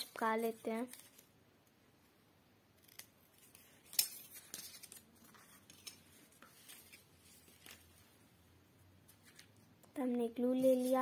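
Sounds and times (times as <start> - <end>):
paper handling: 2.9 - 8.0.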